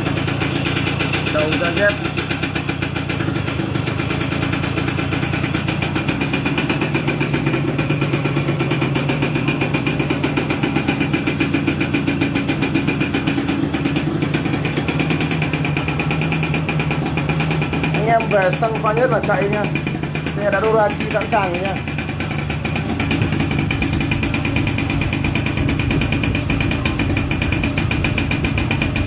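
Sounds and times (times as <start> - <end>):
motorcycle engine idling: 0.0 - 29.0.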